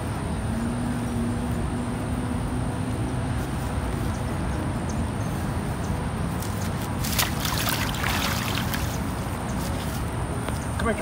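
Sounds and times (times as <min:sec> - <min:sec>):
splashing in muddy water: 0:06.9 - 0:09.1.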